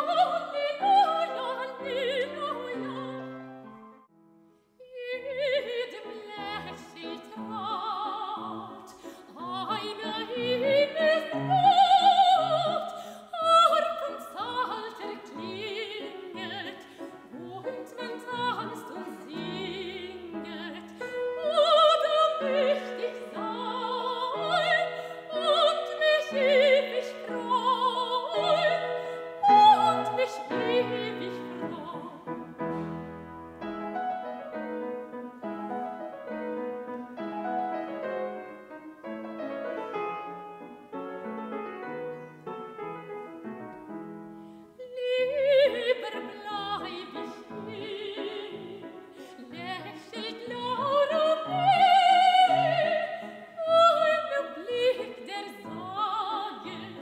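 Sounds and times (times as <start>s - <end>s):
soprano singing with vibrato: 0.0s - 3.7s, 4.8s - 32.9s, 44.6s - 57.0s
grand piano: 0.0s - 57.0s.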